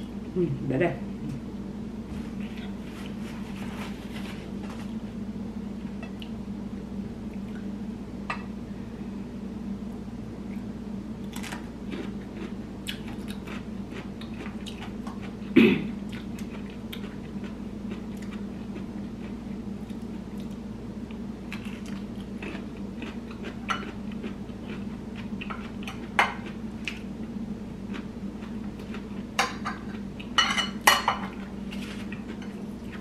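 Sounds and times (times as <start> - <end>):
steady low hum: 0.0 - 33.0
person chewing vegetables: 11.2 - 30.4, 31.3 - 33.0.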